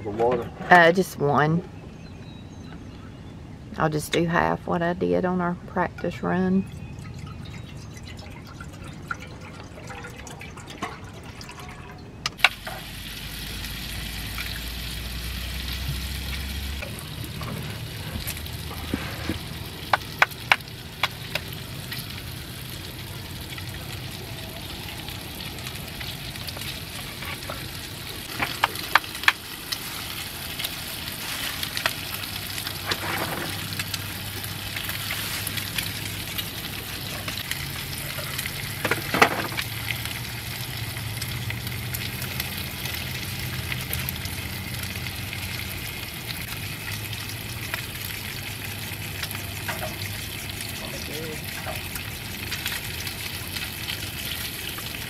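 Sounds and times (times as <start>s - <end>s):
camp stove burner hissing: 12.4s - 40.8s.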